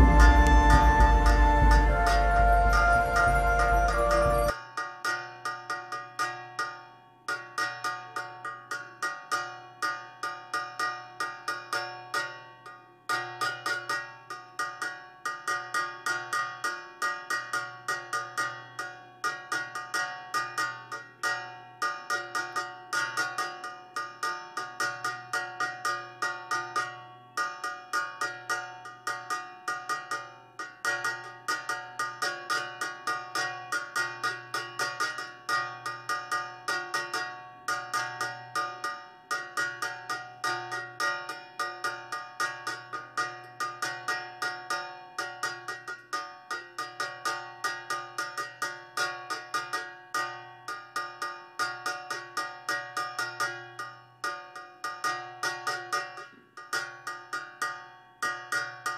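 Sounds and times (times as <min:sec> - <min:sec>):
repeated ringing struck notes: 0:00.0 - 0:04.6.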